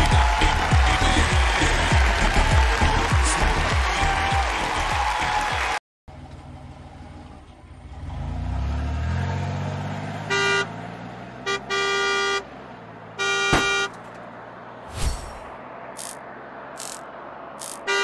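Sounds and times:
truck engine revving: 7.7 - 18.0
truck horn honking: 10.2 - 14.1, 17.6 - 18.0.

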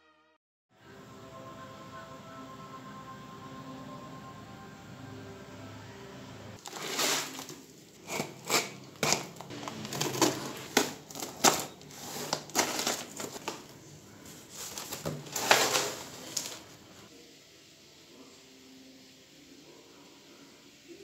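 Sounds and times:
packing tape ripping off cardboard: 6.6 - 13.8, 14.5 - 16.7
cardboard flap rustling: 6.6 - 16.8.

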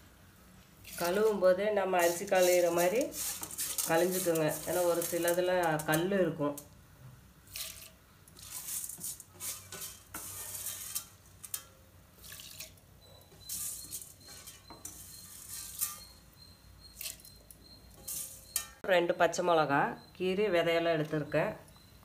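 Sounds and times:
dry beans rattling in metal pot: 0.9 - 6.7, 7.5 - 16.3, 18.0 - 18.8.

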